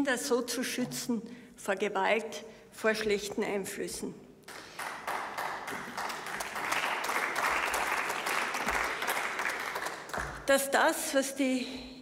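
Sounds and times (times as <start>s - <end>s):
crowd applause: 4.5s - 10.4s.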